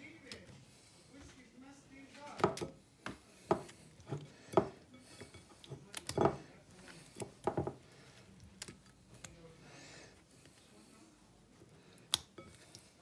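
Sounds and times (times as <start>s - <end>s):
bread knocking against bowl: 2.4s - 4.8s, 7.2s - 7.8s.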